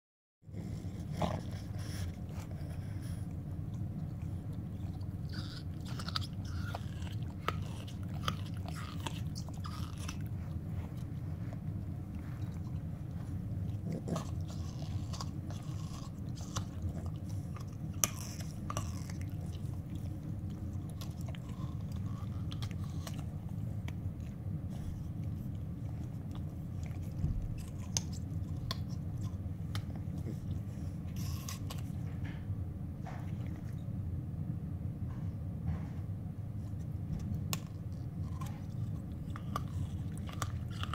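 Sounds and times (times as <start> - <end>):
steady low hum: 0.4 - 40.9
dogs chewing toys: 0.5 - 32.4, 36.6 - 40.9.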